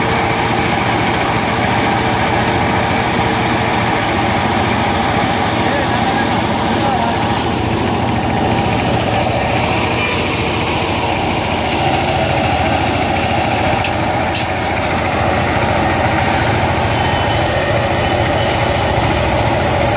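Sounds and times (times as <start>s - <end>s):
thresher engine and drum drone: 0.0s - 19.9s.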